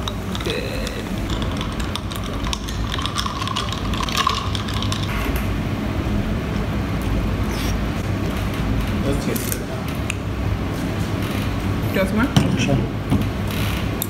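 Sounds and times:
sparkling water fizzing in a jar: 1.3 - 5.1.

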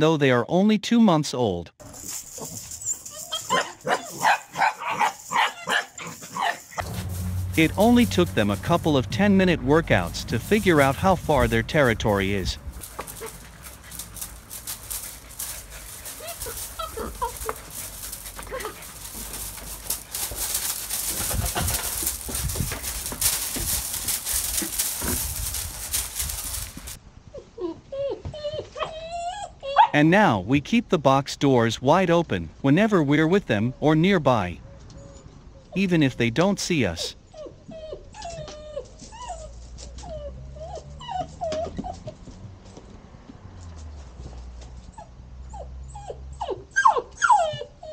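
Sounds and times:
paws scuffling on gravel: 1.8 - 27.0
puppy whining: 2.4 - 4.4, 12.8 - 30.0, 34.7 - 35.8, 37.2 - 42.4, 44.8 - 47.9.

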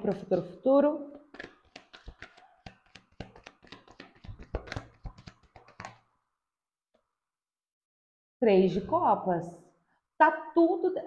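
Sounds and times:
cards being shuffled by hand: 1.2 - 6.0.

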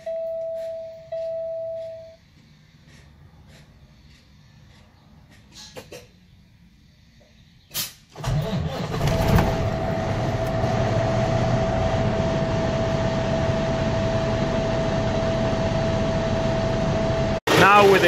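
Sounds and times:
diesel truck engine idling: 8.2 - 17.4.

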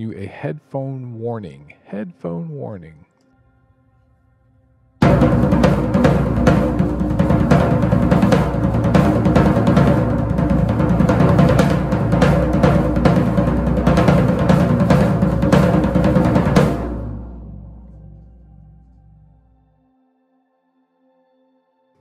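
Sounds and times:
floor tom drum strokes: 5.0 - 19.0.

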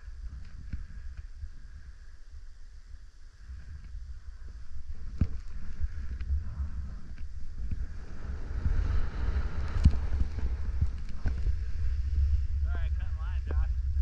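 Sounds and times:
wind rumbling on microphone: 0.0 - 14.0
skis hissing over snow: 4.8 - 12.8.

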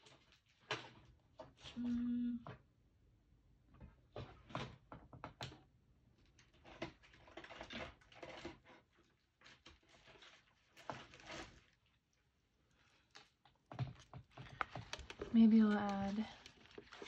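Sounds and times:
sticker sheets and paper crinkling: 12.9 - 17.0.

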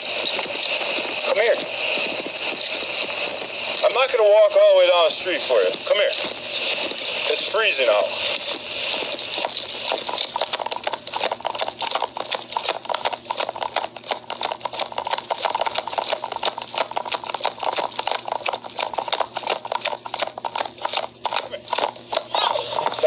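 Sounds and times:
footsteps crunching in snow: 0.0 - 10.4.

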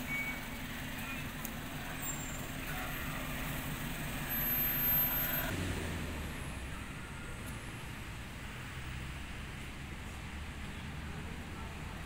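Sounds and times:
vehicle engine running: 0.0 - 8.1.

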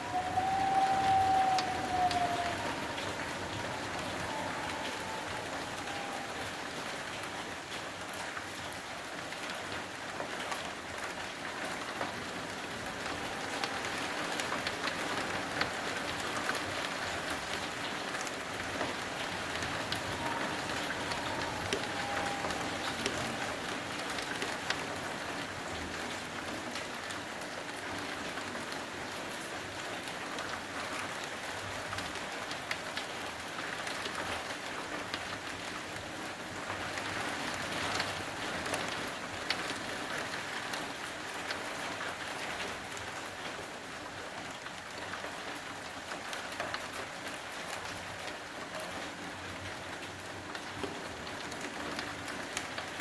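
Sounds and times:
heavy rain hissing: 0.0 - 8.0, 11.8 - 27.0
raindrops hitting close by: 0.0 - 53.0.

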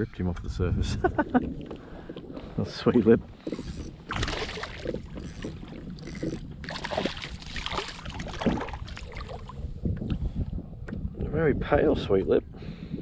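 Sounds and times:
fish splashing water: 3.4 - 9.6.

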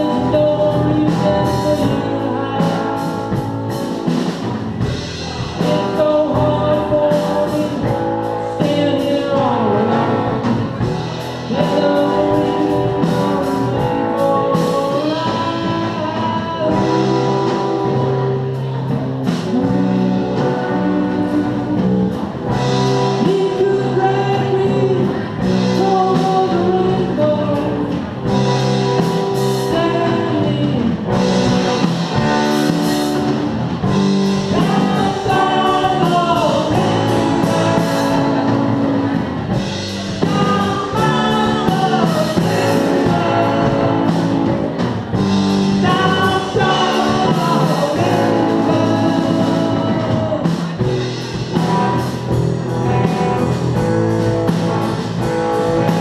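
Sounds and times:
drums with cymbals: 0.0 - 56.0
electric guitars: 0.0 - 56.0
person singing: 0.0 - 56.0.

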